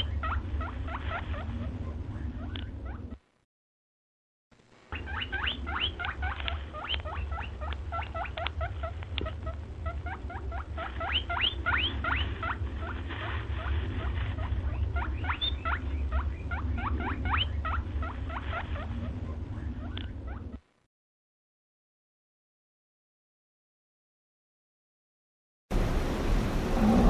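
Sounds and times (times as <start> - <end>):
small animal squeaking: 0.0 - 3.2, 4.9 - 20.6
steady low hum: 0.0 - 3.4, 4.6 - 20.8, 25.7 - 27.0.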